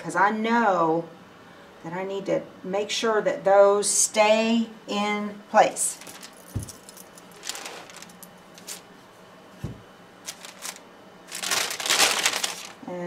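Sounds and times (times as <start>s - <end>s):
fabric and paper rustling: 5.8s - 8.9s, 10.2s - 12.9s.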